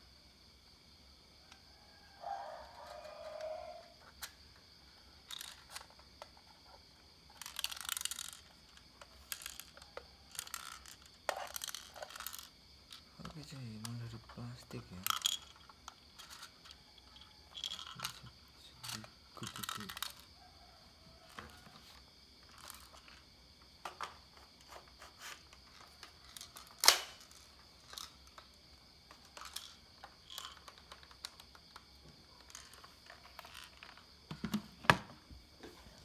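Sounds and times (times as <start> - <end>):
plastic clicks and knocks: 29.1 - 35.2.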